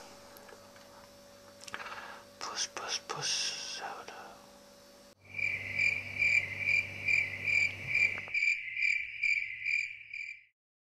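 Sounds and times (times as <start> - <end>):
faint low hum: 0.0 - 8.4
cricket chirping: 4.2 - 10.5.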